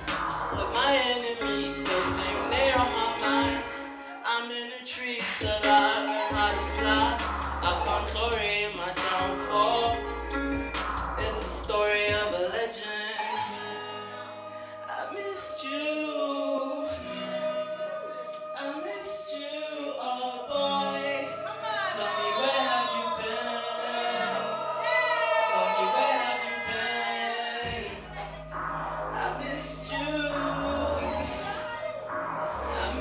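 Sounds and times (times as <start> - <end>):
man singing into a microphone: 0.0 - 33.0.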